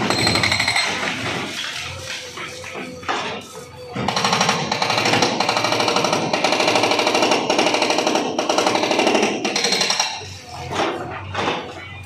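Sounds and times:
hydraulic breaker hammering wall: 0:00.0 - 0:01.6, 0:04.0 - 0:10.3.

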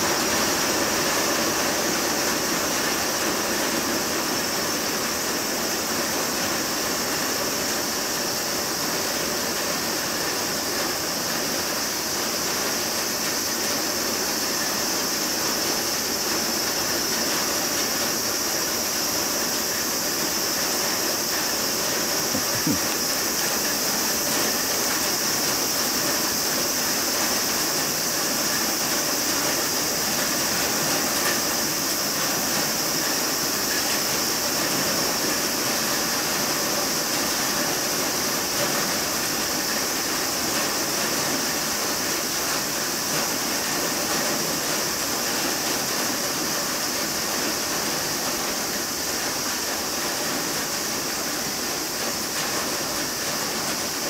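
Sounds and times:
high-pitched hiss: 0:00.0 - 0:54.0.

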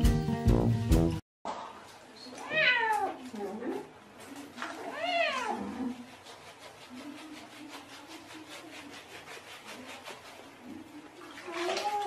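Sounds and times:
cat meowing: 0:02.4 - 0:03.2, 0:04.8 - 0:05.6
hands scrubbing wet fur: 0:03.3 - 0:12.0.

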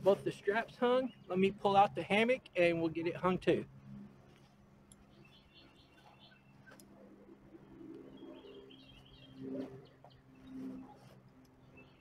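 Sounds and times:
steady low hum: 0:00.0 - 0:12.0
small birds chirping: 0:00.2 - 0:02.0, 0:04.2 - 0:12.0.

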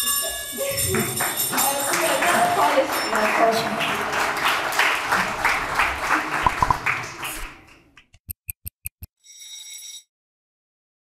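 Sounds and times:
applause: 0:00.7 - 0:08.0
stopwatch ticks: 0:08.2 - 0:09.1.

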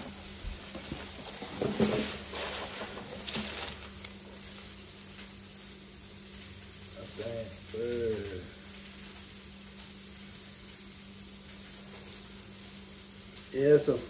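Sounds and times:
tissue paper rustling: 0:00.0 - 0:04.8.

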